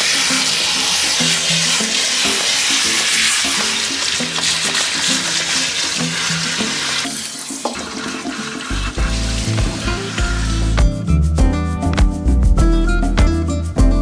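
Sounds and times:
shower water splashing: 0:00.0 - 0:10.8
background music: 0:00.0 - 0:14.0.

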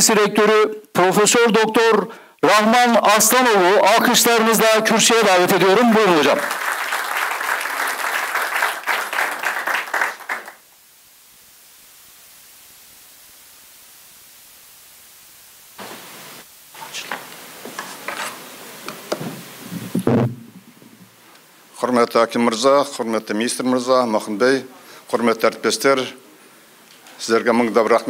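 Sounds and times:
low steady hiss: 0:00.0 - 0:28.0
audience applauding: 0:06.0 - 0:10.6
microphone handling knocks: 0:19.1 - 0:21.1.

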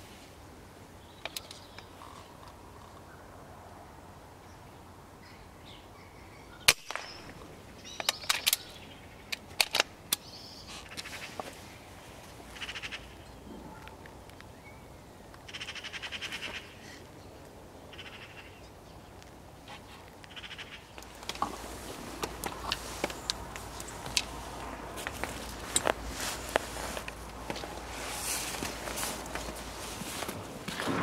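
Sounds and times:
bird calls: 0:01.0 - 0:03.3, 0:04.5 - 0:09.5, 0:10.1 - 0:19.3, 0:20.2 - 0:24.4
air rifle shot: 0:06.7 - 0:07.4, 0:30.8 - 0:31.0.

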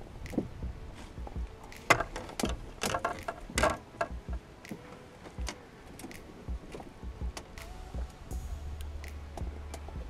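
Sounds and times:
fishing gear clicking and knocking: 0:00.2 - 0:08.2.

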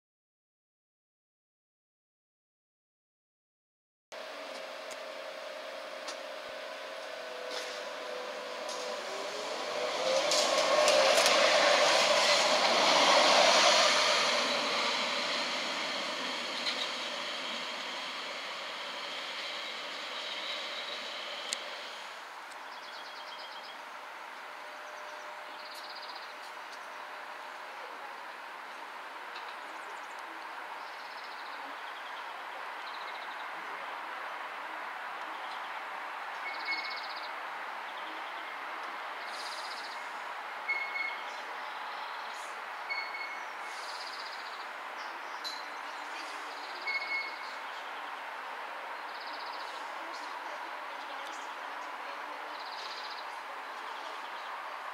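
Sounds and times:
outdoor background noise: 0:04.1 - 0:54.9
tram wheels on rail: 0:04.2 - 0:33.5, 0:34.8 - 0:54.9.

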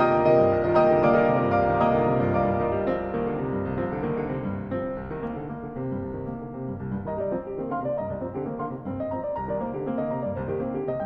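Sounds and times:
classical piano music: 0:00.0 - 0:11.0.

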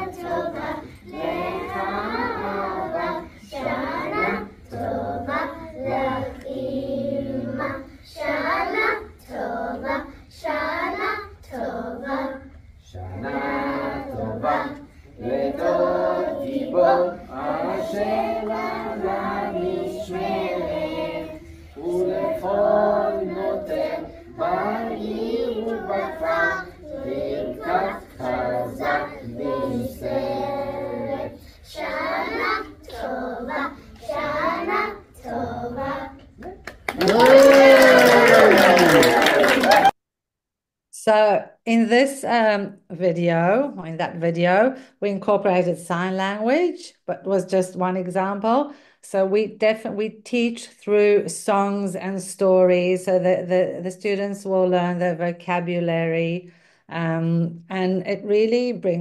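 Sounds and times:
children singing in chorus: 0:00.0 - 0:37.2.

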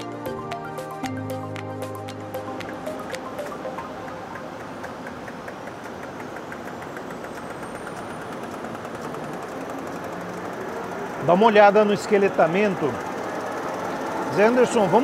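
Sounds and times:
light regular ticking: 0:01.6 - 0:15.0
printing press mechanical hum: 0:03.3 - 0:15.0.

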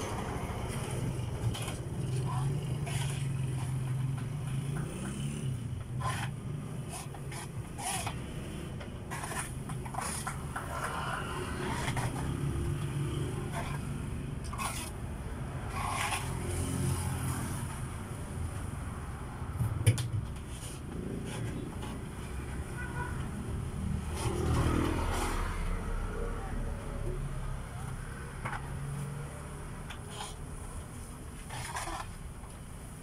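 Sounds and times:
passing road traffic hum: 0:00.0 - 0:33.0
mop scraping rubber mat: 0:31.4 - 0:32.2.

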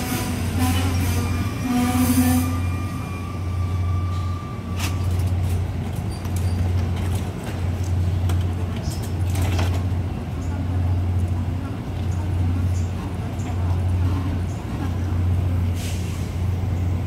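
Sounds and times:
train low hum: 0:00.0 - 0:17.0
thin squealing tones: 0:01.1 - 0:05.3.

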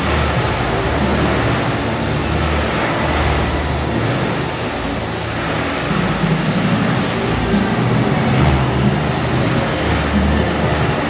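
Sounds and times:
hall background noise: 0:00.0 - 0:11.0
model helicopter rotor whir: 0:00.0 - 0:11.0.

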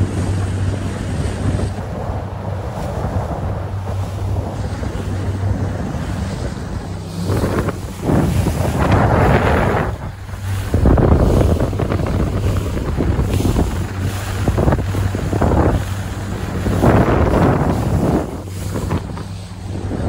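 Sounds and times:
outboard motor hum: 0:00.0 - 0:20.0
rushing water: 0:00.0 - 0:20.0
wind buffeting microphone: 0:00.0 - 0:20.0.

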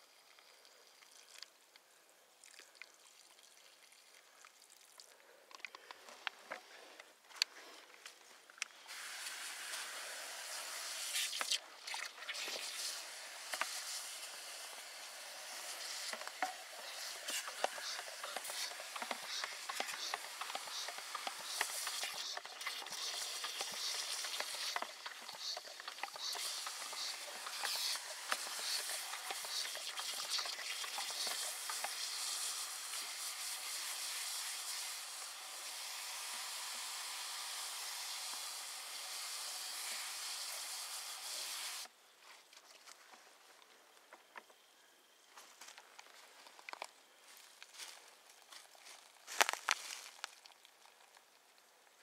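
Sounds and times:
froth fizzing hiss: 0:08.8 - 0:41.9
brush scraping bucket: 0:09.2 - 0:34.9.

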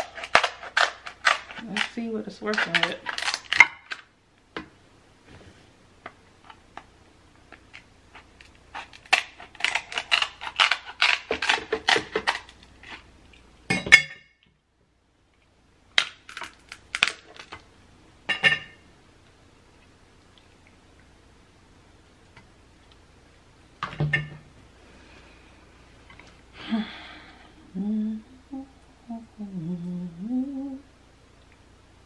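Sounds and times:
crab shell cracking: 0:00.0 - 0:04.1, 0:07.6 - 0:13.0, 0:16.0 - 0:17.6.

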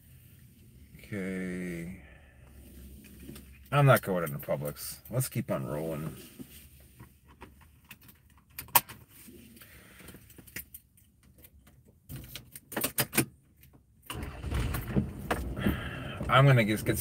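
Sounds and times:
low rumble: 0:14.4 - 0:17.0.

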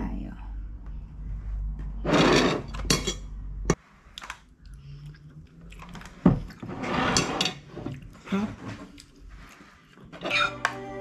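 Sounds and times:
chewing: 0:04.1 - 0:06.7, 0:07.9 - 0:10.2.

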